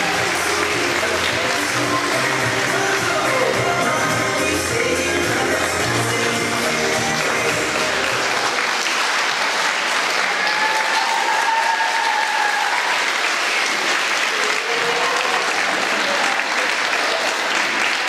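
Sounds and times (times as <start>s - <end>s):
backing music: 0.0s - 8.7s
large audience applauding: 0.0s - 18.0s.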